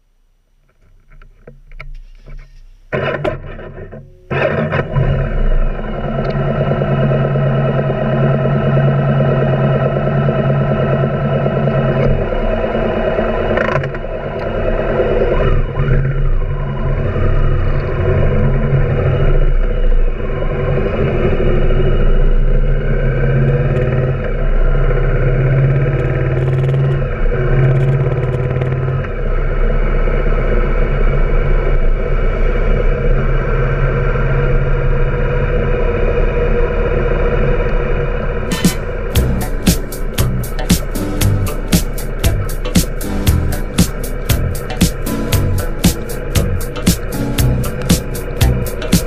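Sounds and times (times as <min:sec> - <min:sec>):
motorcycle engine pulling away: 0:04.9 - 0:49.0.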